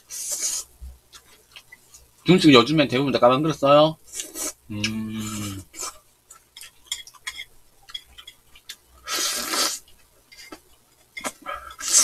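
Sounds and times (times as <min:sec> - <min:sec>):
mouth sounds: 0:04.6 - 0:05.8
person humming: 0:04.7 - 0:05.7
chopsticks clicking on dishes: 0:06.6 - 0:08.7
loud slurp: 0:09.1 - 0:09.8.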